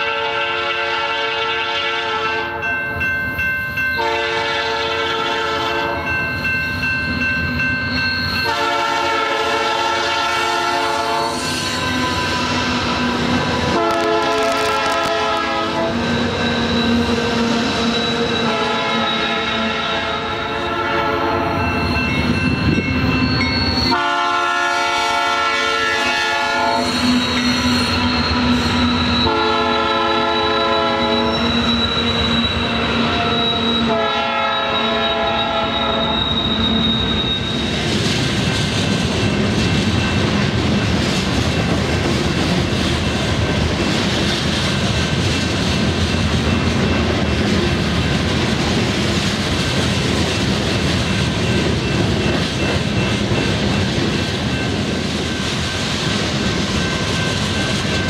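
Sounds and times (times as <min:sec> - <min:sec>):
locomotive air horn blasts: 0:00.0 - 0:02.7, 0:04.0 - 0:06.0, 0:08.4 - 0:11.4, 0:13.7 - 0:16.0, 0:18.5 - 0:21.6, 0:23.9 - 0:27.0, 0:29.2 - 0:31.3, 0:33.2 - 0:36.2
train cars rumbling and clattering: 0:00.0 - 0:58.0.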